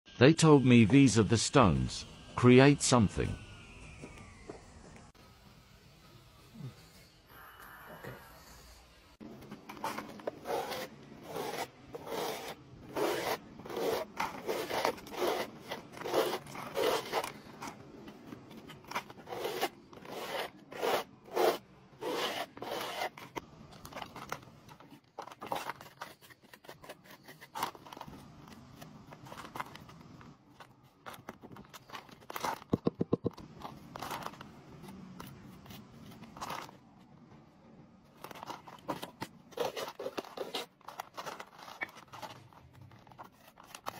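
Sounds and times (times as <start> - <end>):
trowel scraping mortar: 9.8 - 17.4, 18.8 - 23.4.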